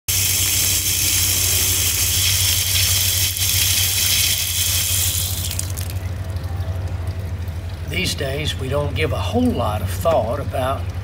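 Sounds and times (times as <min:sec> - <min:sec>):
faucet water splattering on ground: 0:00.1 - 0:07.9
low hum: 0:00.1 - 0:11.0.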